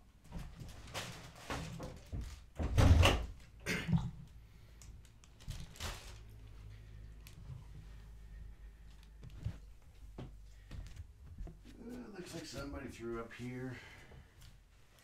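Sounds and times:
door knocks and clunks: 0:02.0 - 0:03.3
heavy door thump: 0:02.6 - 0:03.3.

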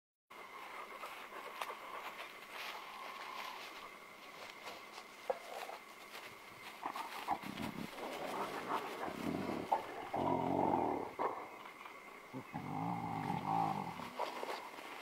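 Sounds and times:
low animal growling: 0:07.2 - 0:14.6.

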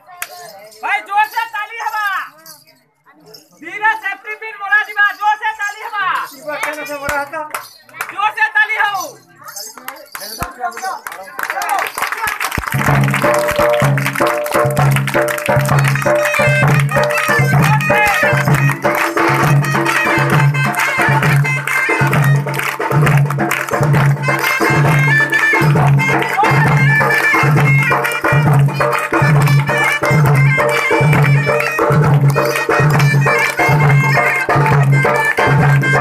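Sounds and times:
deep drum beat: 0:12.8 - 0:36.0
reed wind instrument melody: 0:15.4 - 0:36.0.

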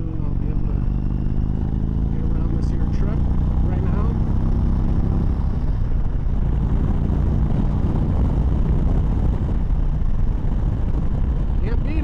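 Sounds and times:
motorcycle engine running: 0:00.0 - 0:12.0
wind rush: 0:04.3 - 0:12.0.

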